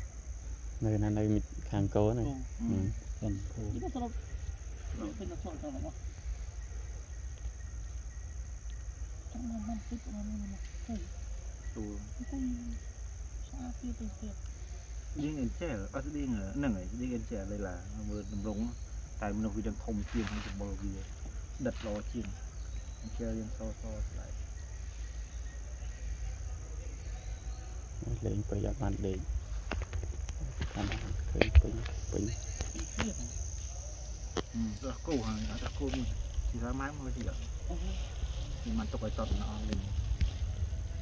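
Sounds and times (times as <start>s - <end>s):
insects chirring: 0.0s - 41.0s
low rumble: 34.7s - 41.0s.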